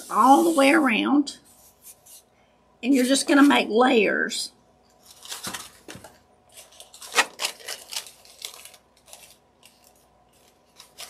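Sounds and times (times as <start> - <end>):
paper filters rustling: 0.0 - 2.3, 5.0 - 11.0.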